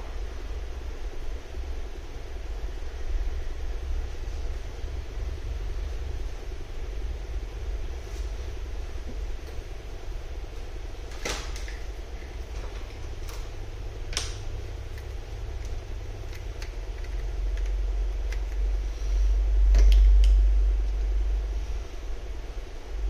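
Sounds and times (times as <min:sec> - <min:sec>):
deep background rumble: 0:00.0 - 0:23.0.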